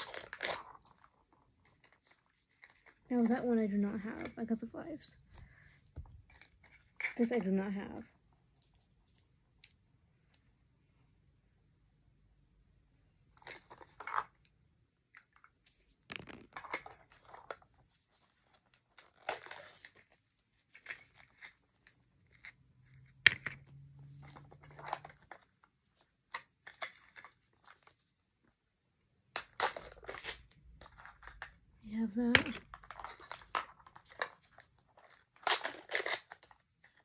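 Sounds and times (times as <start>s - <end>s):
wrappers tearing and crinkling: 0.0s - 1.1s, 18.9s - 21.6s, 34.9s - 37.0s.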